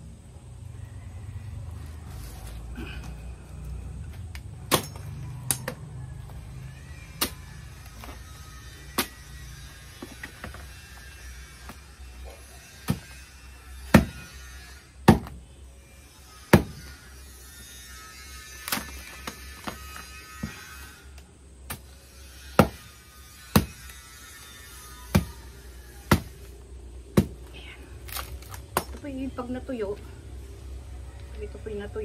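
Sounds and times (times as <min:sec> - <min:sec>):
machete chopping palm stalks: 0:04.2 - 0:05.9, 0:06.8 - 0:15.4, 0:16.5 - 0:17.0, 0:18.5 - 0:29.5.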